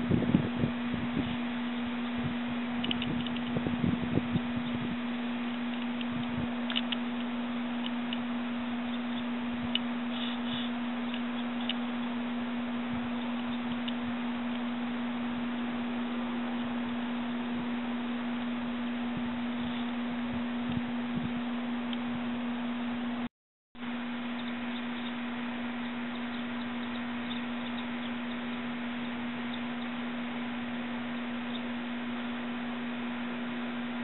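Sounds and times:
steady low hum: 0.0 - 34.0
faint high chirps: 4.3 - 17.5, 24.1 - 32.4.

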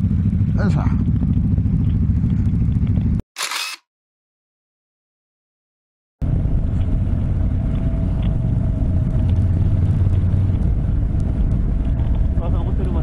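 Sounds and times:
motorcycle engine rumbling: 0.0 - 3.2
wind and road noise: 0.0 - 3.8, 6.2 - 13.0.

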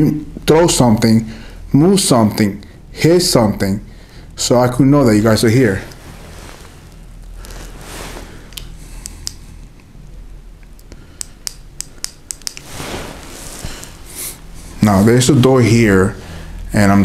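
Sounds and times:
low steady hum: 0.0 - 17.0
faint rustling: 5.0 - 9.8, 12.6 - 17.0
small sharp clicks: 10.6 - 12.7.

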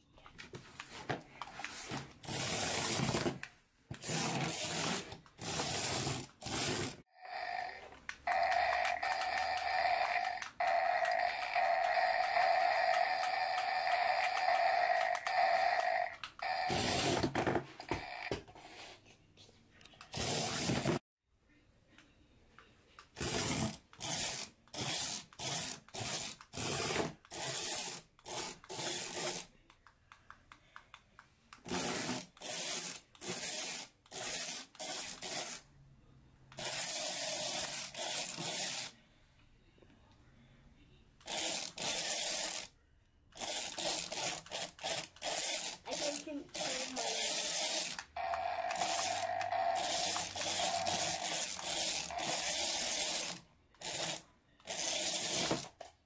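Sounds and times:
toy playing fart sounds: 7.1 - 18.4, 45.2 - 55.5.

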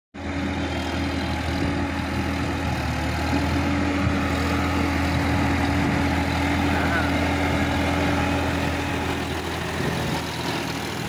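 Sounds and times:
tractor diesel engine running: 0.2 - 11.0.

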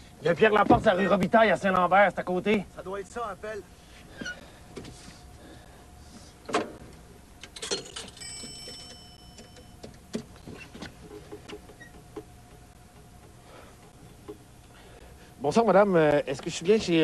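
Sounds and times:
payphone clicks and knocks: 7.4 - 13.4.

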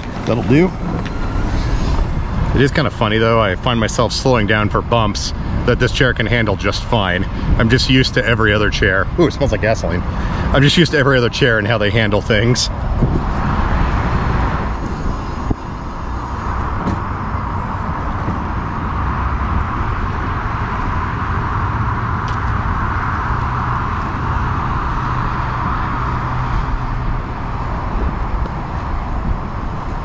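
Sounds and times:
wheelchair rolling on pavement: 0.0 - 3.4.

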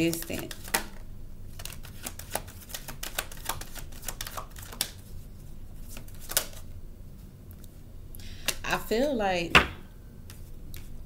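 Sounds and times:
cards being shuffled: 0.0 - 5.2, 5.8 - 6.6.

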